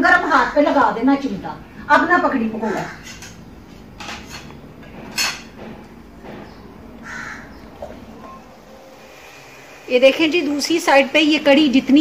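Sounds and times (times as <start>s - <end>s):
bird cawing: 2.6s - 3.2s, 6.5s - 8.6s.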